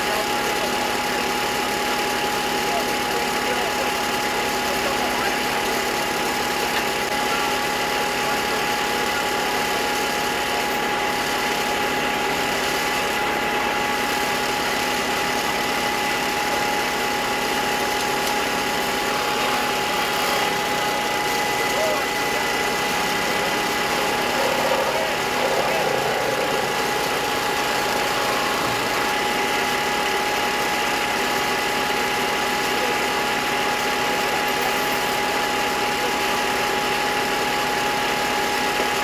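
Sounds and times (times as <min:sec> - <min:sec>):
engine droning: 0:04.4 - 0:33.6
high-pitched whine: 0:19.0 - 0:31.2.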